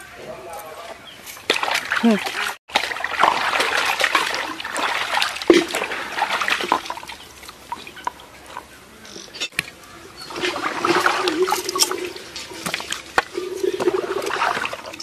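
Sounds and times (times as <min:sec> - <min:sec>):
water dripping and trickling: 0:01.4 - 0:08.7, 0:10.3 - 0:15.0
water splashing in plastic tub: 0:01.5 - 0:08.2, 0:10.3 - 0:15.0.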